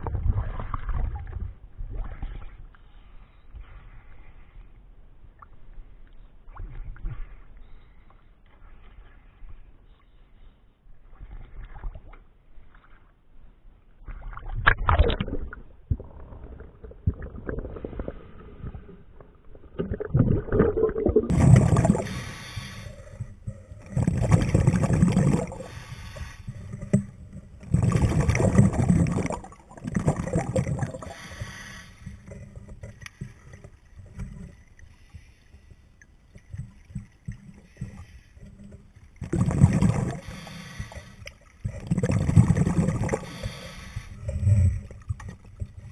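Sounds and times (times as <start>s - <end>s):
water splashing and sloshing: 0.0s - 45.9s
scuba regulator bubbling: 14.1s - 35.2s, 36.3s - 45.9s.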